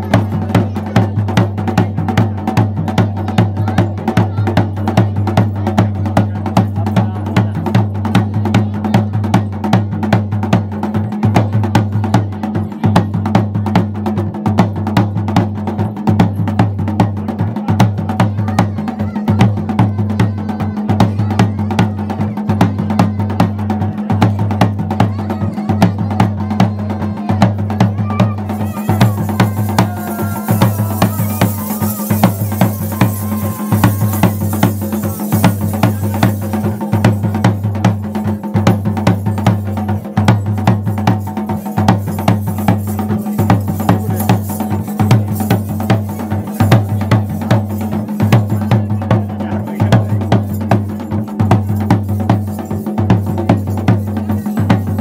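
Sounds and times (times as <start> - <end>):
drums in fast beat: 0.0 - 55.0.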